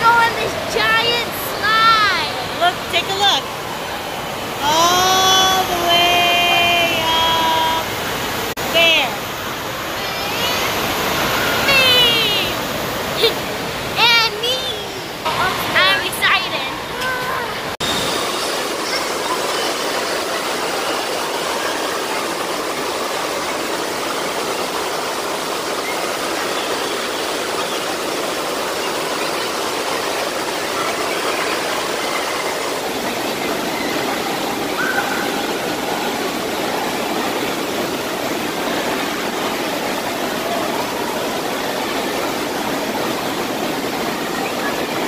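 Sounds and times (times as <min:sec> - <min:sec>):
water rushing and churning: 0:00.0 - 0:45.0.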